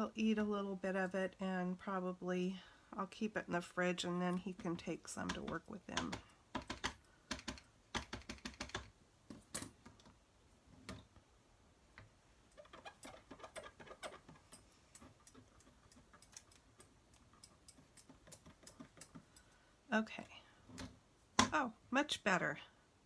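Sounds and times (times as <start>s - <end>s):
ink pad tapping on stamp: 5.2s - 8.8s.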